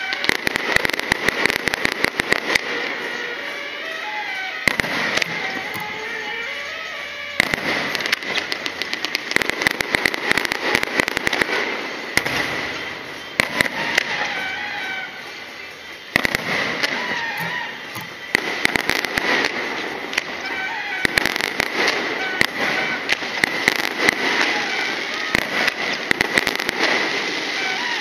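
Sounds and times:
fireworks crackling: 0:00.0 - 0:28.0.

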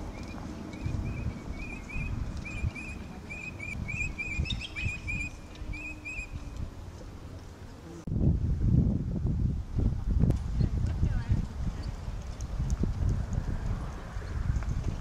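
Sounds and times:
small bird chirping: 0:00.1 - 0:06.6.

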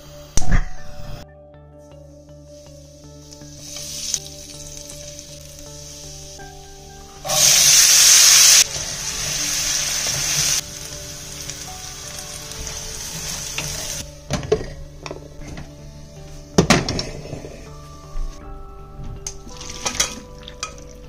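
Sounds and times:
soft background music: 0:00.0 - 0:21.0
food sizzling in hot oil: 0:03.2 - 0:14.1.

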